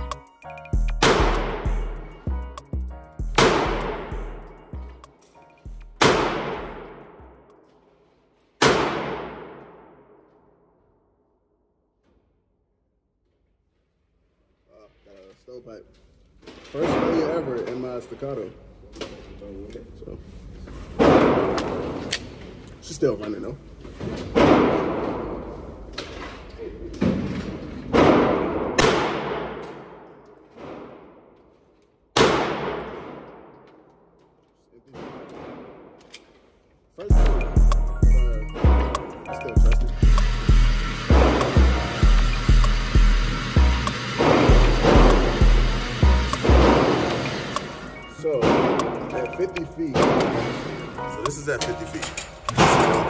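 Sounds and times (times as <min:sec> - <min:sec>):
pistol gunshots with echo: 0:08.6 - 0:09.9, 0:28.0 - 0:30.1, 0:32.2 - 0:33.5.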